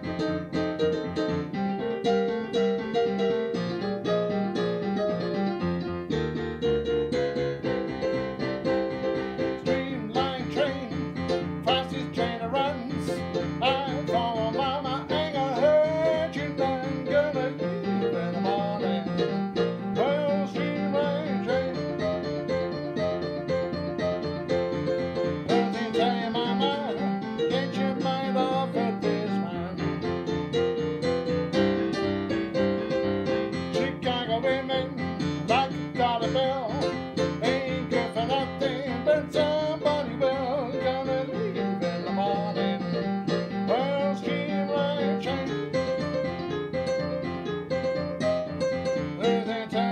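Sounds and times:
digital piano jazz tune: 0.0 - 49.9
man singing: 9.6 - 22.3, 25.4 - 30.0, 33.7 - 46.1, 49.2 - 49.9.

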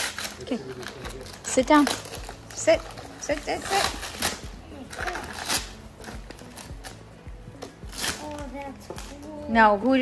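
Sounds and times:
wrapping paper crinkling and tearing: 0.0 - 7.1, 7.8 - 9.3
faint music: 0.0 - 10.0.

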